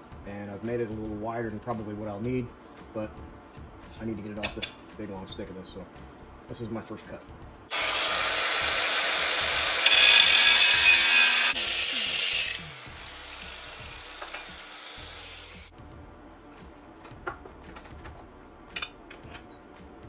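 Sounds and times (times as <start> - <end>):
angle grinder cutting aluminium: 7.7 - 15.7.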